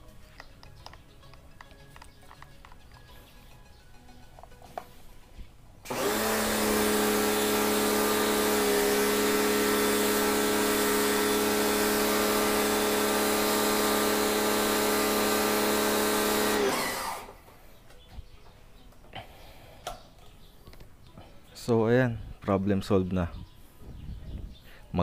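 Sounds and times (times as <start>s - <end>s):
pressure washer motor humming: 5.8s - 17.4s.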